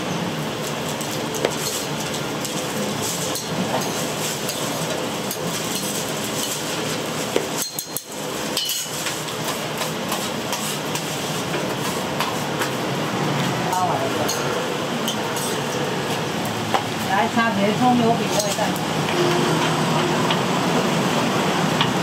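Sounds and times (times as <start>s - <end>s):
utensils clinking against cookware: 1.3s - 6.7s, 7.4s - 11.0s, 13.7s - 15.8s, 18.2s - 18.8s.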